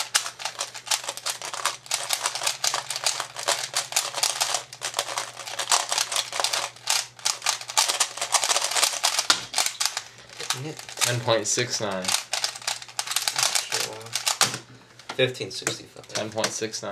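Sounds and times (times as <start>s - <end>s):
plastic puzzle cube clicking: 12.0s - 14.6s.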